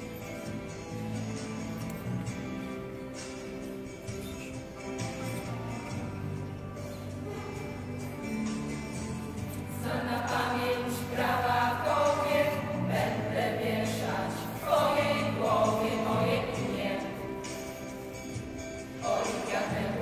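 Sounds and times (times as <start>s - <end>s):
women's choir singing: 9.7s - 18.2s, 18.8s - 20.0s.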